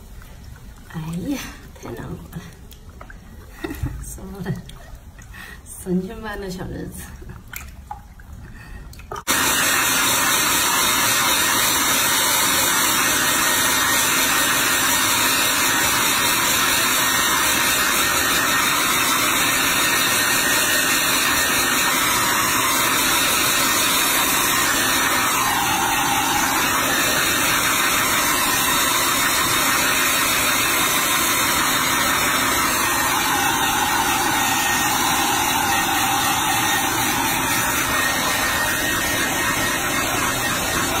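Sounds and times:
hair dryer blowing: 9.2 - 41.0.

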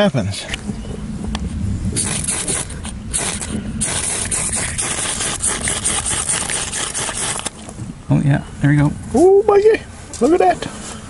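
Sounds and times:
knife scraping ferrocerium rod: 3.9 - 7.5.

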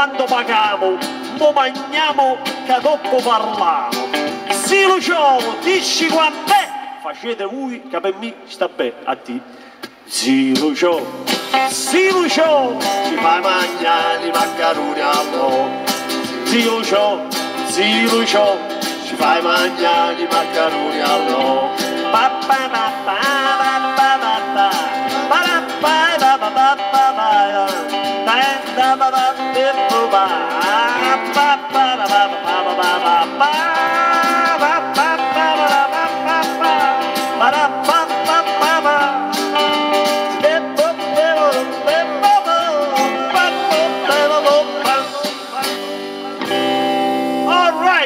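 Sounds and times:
acoustic guitar strumming: 0.0 - 7.8, 9.6 - 48.0
harmonica melody: 11.2 - 47.9.

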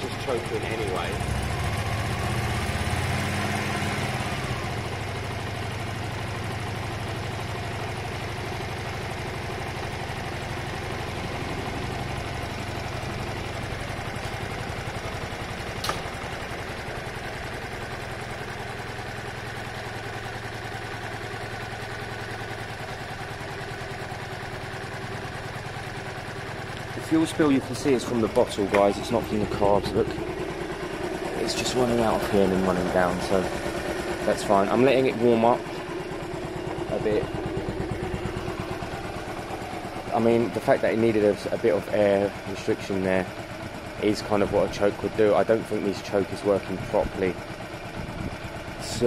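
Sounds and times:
motorcycle engine idling: 0.0 - 49.0
sharp click: 15.8 - 16.1.

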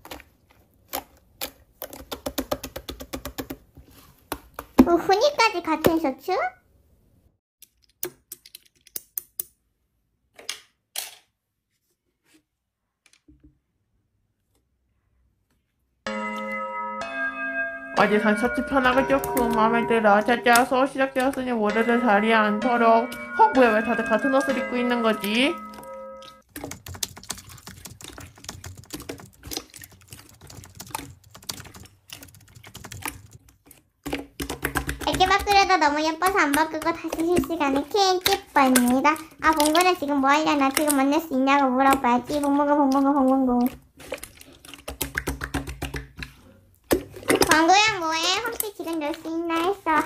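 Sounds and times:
slime squelching: 0.0 - 6.1, 18.0 - 50.0
chime-like musical tone: 16.1 - 20.6, 21.7 - 26.4
slime clicking and popping: 34.0 - 50.0.

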